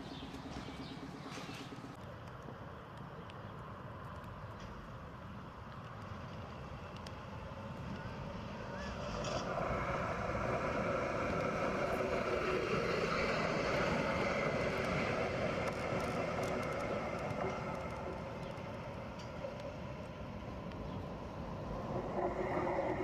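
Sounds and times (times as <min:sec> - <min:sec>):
tram passing: 0:04.6 - 0:23.0.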